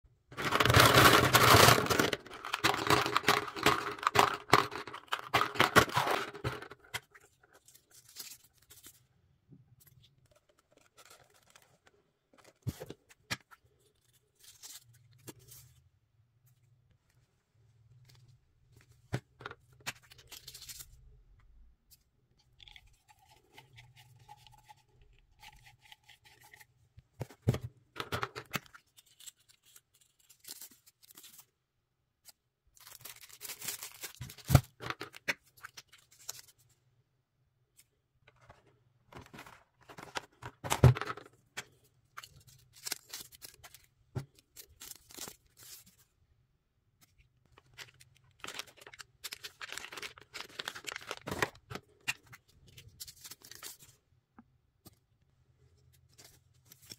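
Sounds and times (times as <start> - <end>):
packaging crinkling and tearing: 0.4 - 9.0, 32.8 - 36.5, 42.2 - 45.8, 47.6 - 52.2.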